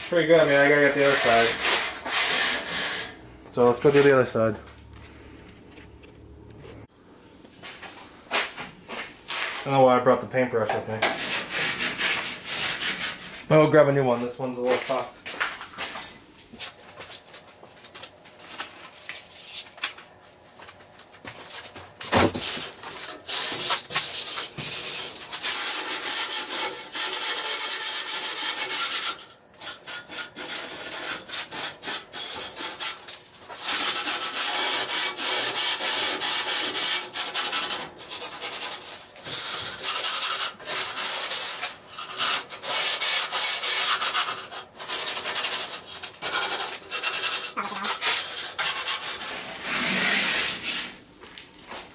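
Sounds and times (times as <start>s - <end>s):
abrasive pad scrubbing metal: 0.0s - 4.4s, 33.6s - 51.0s.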